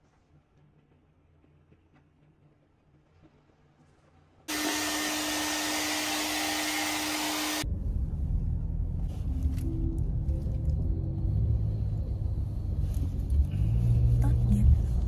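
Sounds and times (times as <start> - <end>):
hair dryer blowing: 4.5 - 7.6.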